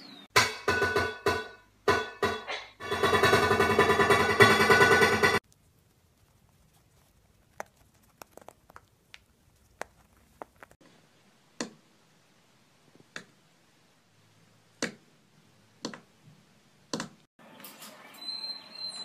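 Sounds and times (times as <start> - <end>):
bird crunching food in beak: 5.5 - 10.8.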